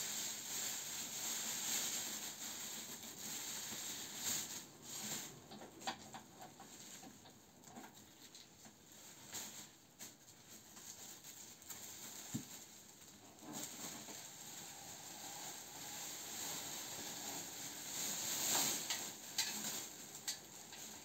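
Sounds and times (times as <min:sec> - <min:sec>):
plastic bag rustling and crinkling: 0:00.0 - 0:21.0.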